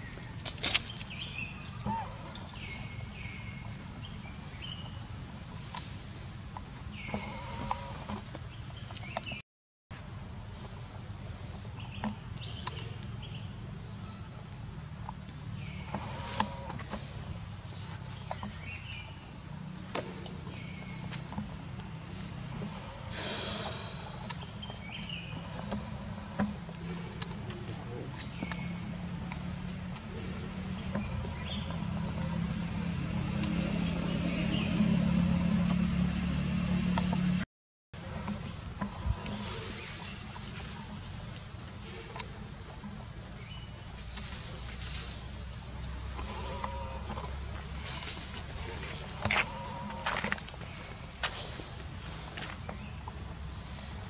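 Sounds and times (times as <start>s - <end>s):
low outdoor rumble: 10.0s - 37.4s, 38.0s - 54.0s
vehicle engine running: 10.4s - 37.4s, 38.0s - 54.0s.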